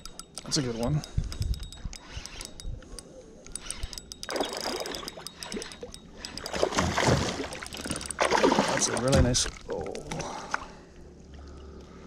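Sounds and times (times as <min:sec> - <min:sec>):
fishing reel gears ticking: 0:00.0 - 0:09.1
fish splashing at surface: 0:06.5 - 0:10.1.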